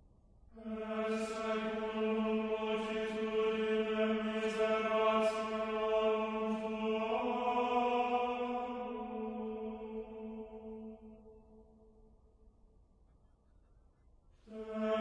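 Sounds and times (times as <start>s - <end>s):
chanted low drone: 0.5s - 12.3s.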